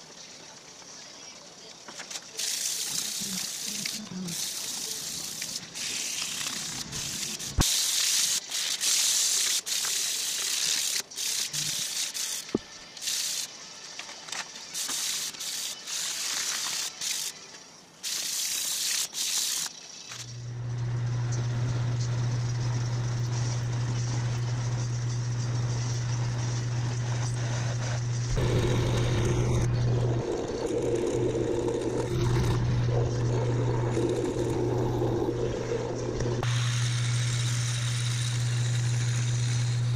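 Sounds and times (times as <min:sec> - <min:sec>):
sandpaper rasping on metal: 0:02.4 - 0:13.6, 0:14.7 - 0:17.4, 0:18.0 - 0:19.7
drill grinding into metal: 0:18.6 - 0:39.9
metal lathe humming: 0:20.3 - 0:39.9.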